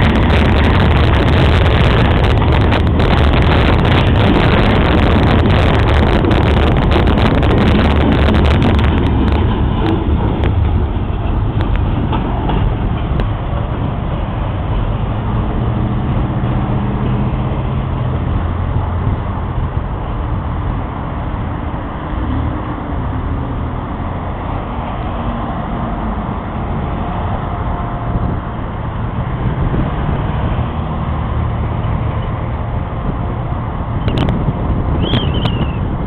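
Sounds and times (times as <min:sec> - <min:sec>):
train rumbling: 0:00.0 - 0:36.0
train wheel clicks: 0:00.1 - 0:13.8.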